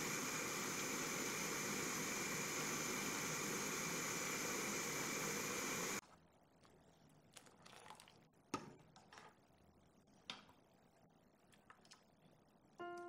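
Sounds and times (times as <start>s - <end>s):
water boiling in wok: 0.0s - 6.2s.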